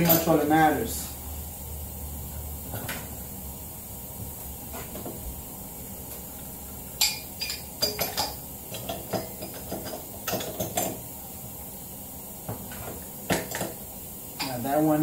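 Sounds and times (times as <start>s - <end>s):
pipe wrench clinking on metal: 0.0s - 0.5s, 7.0s - 11.0s, 14.4s - 14.7s.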